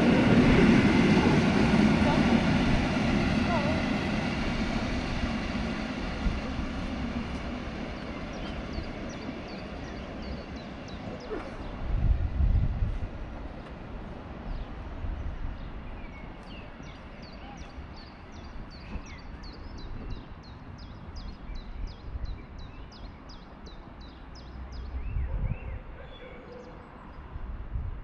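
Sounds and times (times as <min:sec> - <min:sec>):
steady low rumble: 0:00.0 - 0:15.9.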